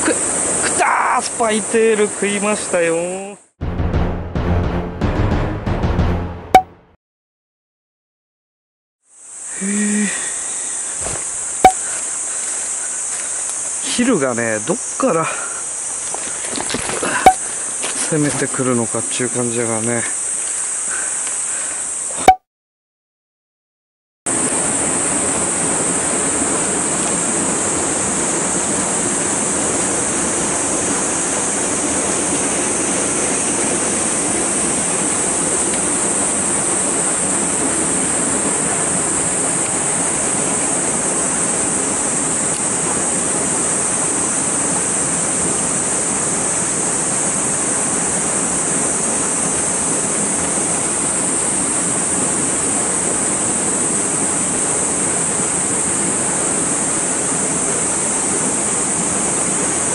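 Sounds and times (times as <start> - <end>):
steady high hiss: 0.0 - 3.4, 9.1 - 22.2
stream water rushing through gorge: 24.4 - 59.9.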